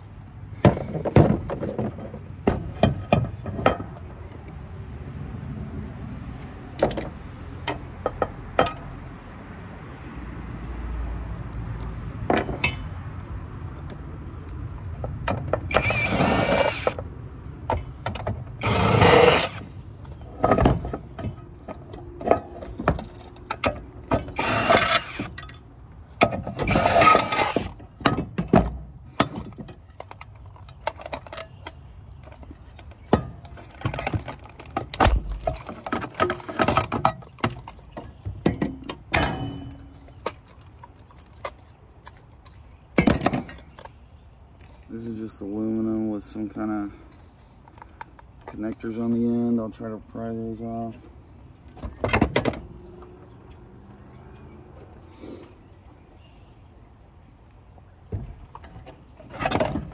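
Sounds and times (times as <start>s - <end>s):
hand tools clanking on metal: 35.5s - 40.2s.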